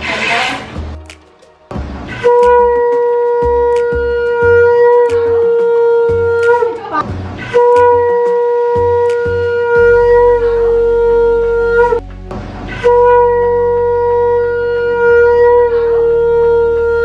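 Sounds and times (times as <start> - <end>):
conch shell blasts: 2.1 - 3.7, 7.4 - 12.0.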